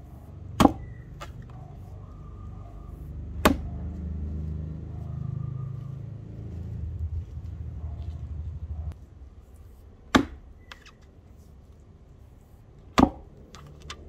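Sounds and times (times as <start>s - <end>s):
axe chopping into wood: 0.5s - 1.4s, 3.4s - 3.8s, 10.1s - 11.0s, 12.9s - 14.0s
low rumble: 1.6s - 9.6s.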